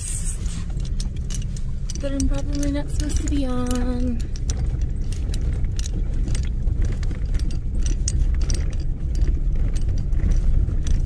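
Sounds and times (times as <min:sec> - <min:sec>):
vehicle engine and tyres rumbling: 0:00.0 - 0:11.0
cab rattling and clicking: 0:00.4 - 0:11.0.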